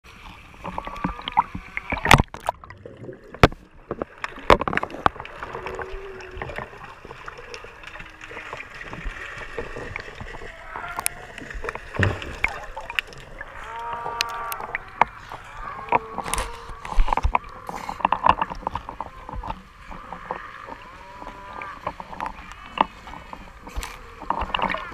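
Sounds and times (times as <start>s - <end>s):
water splashes: 0.1s - 24.9s
sea lions barking and moaning: 5.3s - 8.6s, 10.2s - 24.9s.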